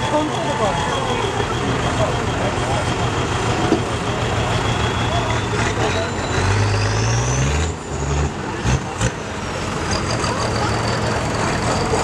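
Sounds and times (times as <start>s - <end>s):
tractor engine running: 0.0s - 7.1s.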